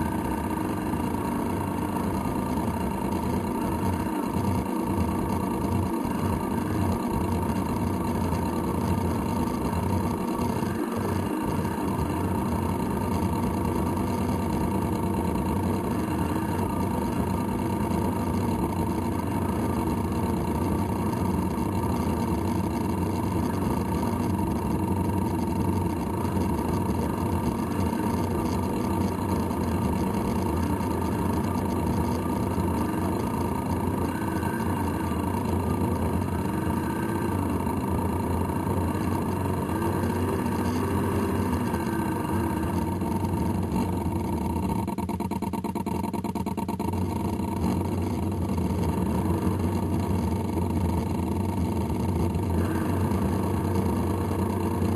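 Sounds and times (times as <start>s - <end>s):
model boat engine running: 0.0s - 54.9s.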